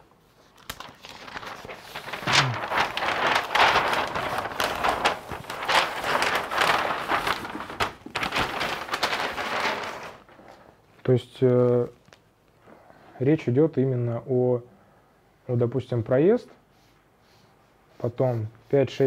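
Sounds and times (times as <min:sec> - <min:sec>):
paper sheets rustling: 0:00.3 - 0:10.8.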